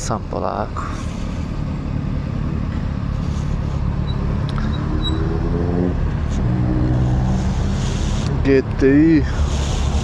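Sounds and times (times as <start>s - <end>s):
wind and road noise: 0.0s - 10.0s.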